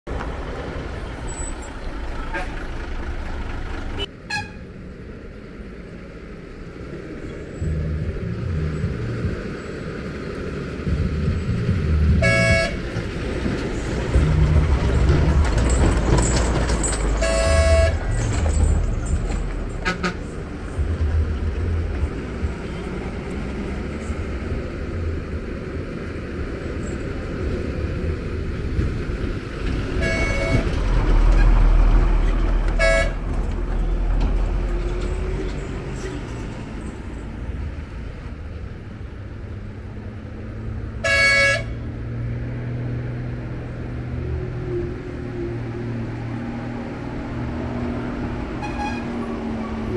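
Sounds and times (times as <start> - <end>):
lorry diesel engines labouring: 0.1 - 49.9
vehicle horn tooting: 4.0 - 4.6, 12.2 - 12.8, 17.2 - 18.1, 19.8 - 20.4, 30.0 - 30.7, 32.8 - 33.2, 41.0 - 41.8, 48.6 - 49.2.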